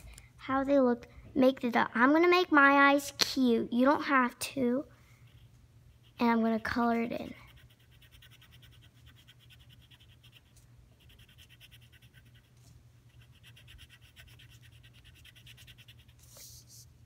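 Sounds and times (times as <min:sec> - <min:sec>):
pencil scratching on paper: 0:05.3 - 0:16.8.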